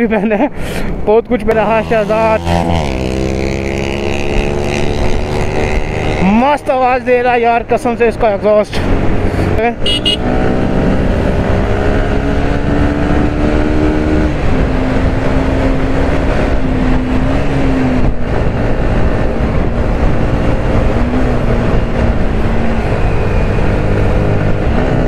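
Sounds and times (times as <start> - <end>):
motorcycle engine cruising: 1.5 - 25.0
wind rush: 8.6 - 25.0.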